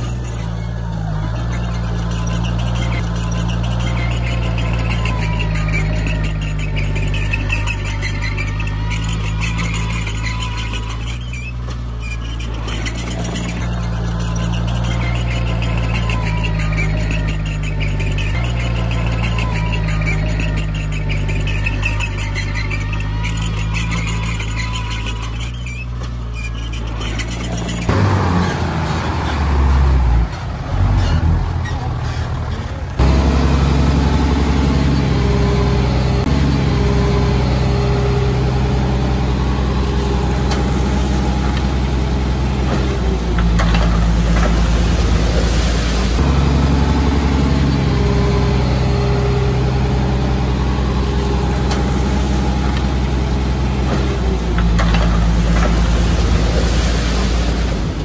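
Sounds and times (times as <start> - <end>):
heavy machinery diesel engine: 0.0 - 58.0.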